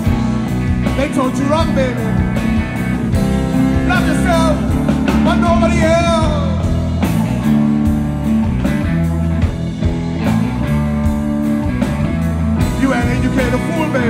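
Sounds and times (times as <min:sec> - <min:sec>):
bass guitar notes: 0:00.0 - 0:14.0
blues band playing: 0:00.0 - 0:14.0
electric guitar: 0:00.0 - 0:14.0
steady drum beat: 0:00.0 - 0:14.0
person singing: 0:03.9 - 0:06.8.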